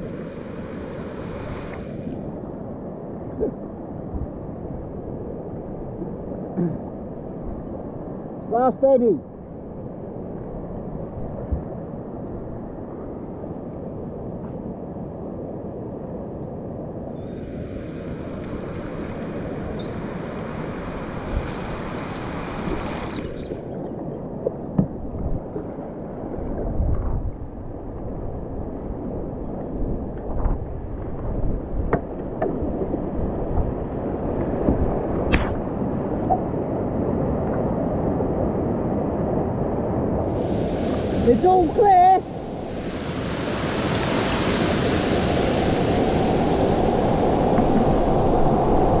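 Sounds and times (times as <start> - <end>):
river water rushing: 0.0 - 2.2, 17.6 - 23.8, 40.3 - 49.0
wind buffeting microphone: 9.3 - 49.0
whitewater splashes and knocks: 20.0 - 23.4, 24.4 - 25.7, 30.1 - 36.4, 46.6 - 49.0
high hiss: 40.3 - 46.3.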